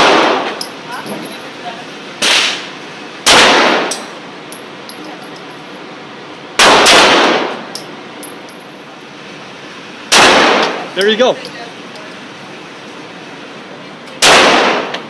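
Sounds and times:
pistol shots indoors: 3.2s - 4.0s, 6.6s - 7.6s, 10.1s - 10.8s, 14.2s - 15.0s.

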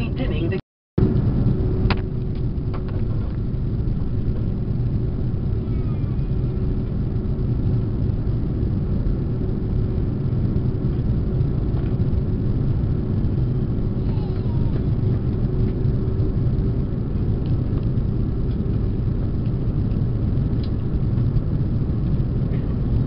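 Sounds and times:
airplane cabin engine rumble: 0.0s - 23.0s
faint steady hum: 0.0s - 23.0s.

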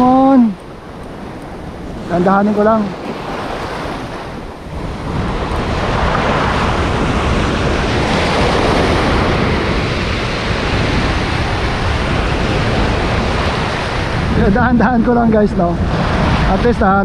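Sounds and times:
sea surf breaking on shore: 0.0s - 17.0s
wind buffeting microphone: 0.0s - 17.0s.

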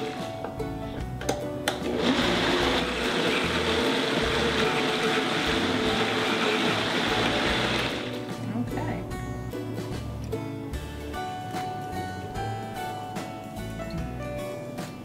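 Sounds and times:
blender running: 1.7s - 8.2s.

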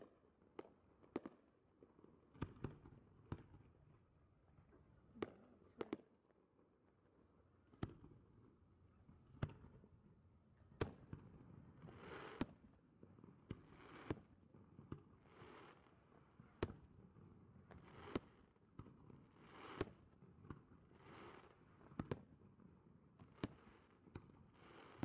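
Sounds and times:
fireworks pops: 5.2s - 6.1s.

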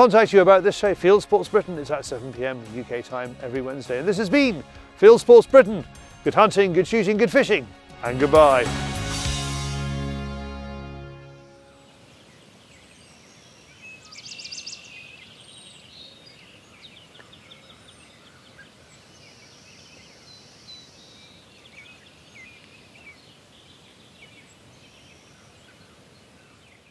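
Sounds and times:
small birds chirping and trilling: 11.8s - 26.9s.

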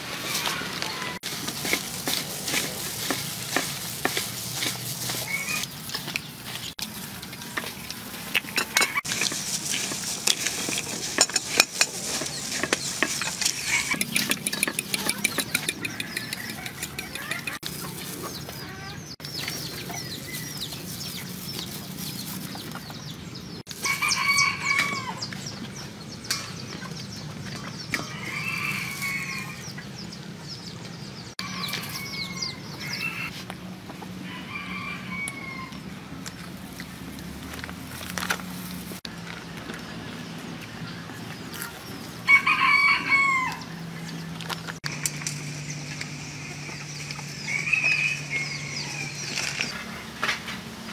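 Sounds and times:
hands rustling in bread crumbs: 0.0s - 15.2s, 15.8s - 23.0s
chickens clucking: 0.0s - 37.3s
rooster crowing: 23.8s - 25.2s, 28.0s - 29.6s, 31.4s - 33.3s, 34.2s - 35.8s, 42.3s - 43.8s, 47.3s - 49.3s.

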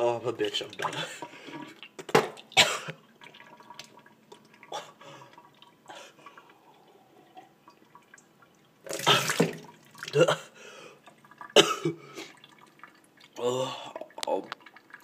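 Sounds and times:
person gulping: 4.4s - 7.7s, 8.9s - 15.0s
water sloshing in plastic bottle: 8.8s - 10.3s.

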